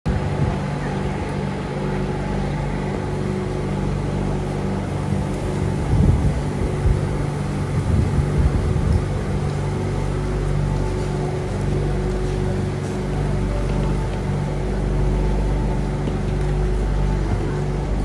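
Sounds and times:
electric train humming: 0:00.1 - 0:18.0.

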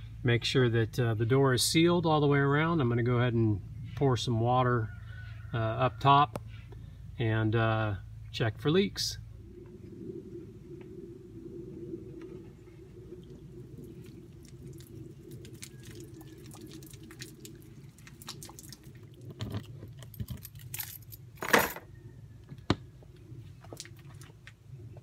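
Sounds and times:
water splashing and dripping: 0:13.0 - 0:21.0.

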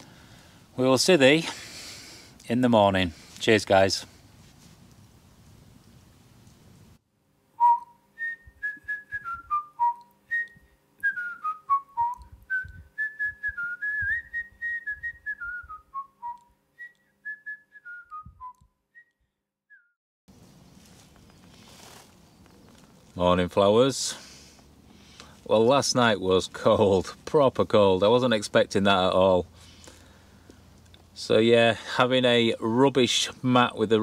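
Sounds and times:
faint steady hum: 0:00.0 - 0:18.4, 0:20.3 - 0:34.0
person whistling a tune: 0:07.6 - 0:20.0.

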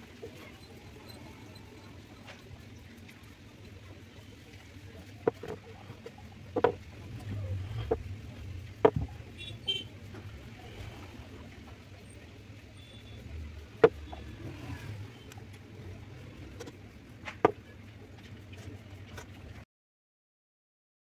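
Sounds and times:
steady low rumble: 0:04.6 - 0:12.6.

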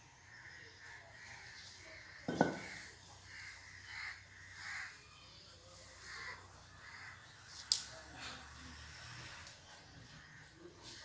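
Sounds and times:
crows cawing: 0:00.2 - 0:05.1, 0:06.0 - 0:07.3
thump: 0:02.3 - 0:02.8.

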